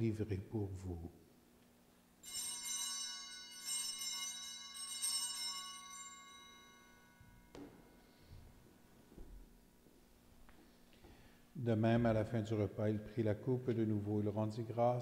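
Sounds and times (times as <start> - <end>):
small bells ringing: 2.2 - 8.4.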